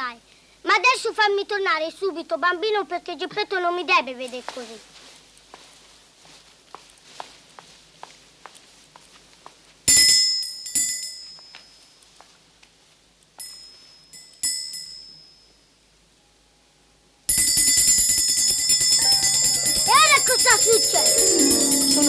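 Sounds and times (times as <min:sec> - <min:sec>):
handbell ringing: 0:09.9 - 0:11.8, 0:13.4 - 0:15.6, 0:17.3 - 0:22.0.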